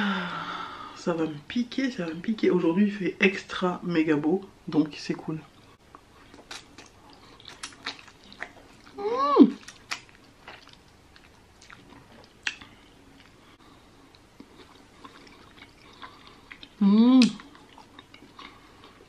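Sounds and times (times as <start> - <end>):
wet mouth clicks and smacks: 5.9 - 8.6, 9.6 - 12.7
person humming mm: 16.8 - 17.5.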